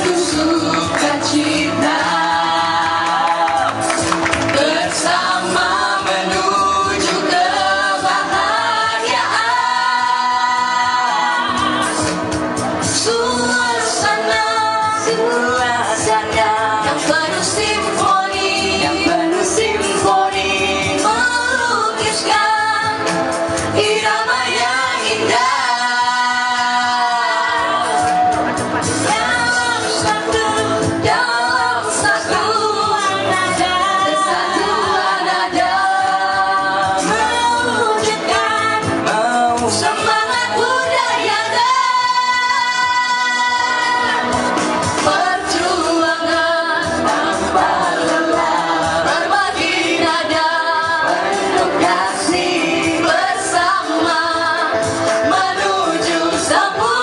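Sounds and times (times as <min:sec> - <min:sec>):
backing track with beat: 0:00.0 - 0:57.0
group singing pop song: 0:00.0 - 0:57.0.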